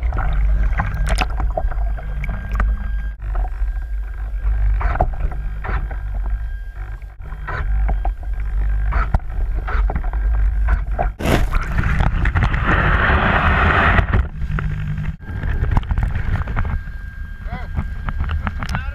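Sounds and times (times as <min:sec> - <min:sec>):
water sloshing and splashing: 0:00.0 - 0:03.1
rushing noise: 0:12.4 - 0:14.2.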